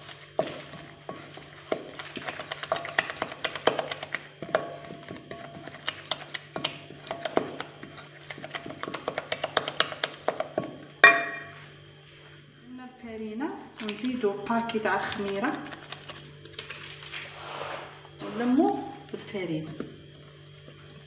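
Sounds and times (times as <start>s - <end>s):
wooden spoon knocking glass bowl: 11.0s - 11.6s.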